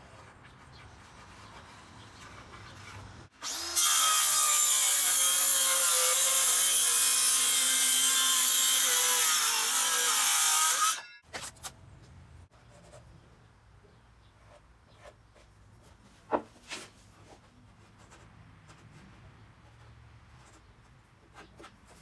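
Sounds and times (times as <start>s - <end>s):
circular saw cutting wood: 3.3s - 11.2s
faint outdoor ambience: 11.3s - 22.0s.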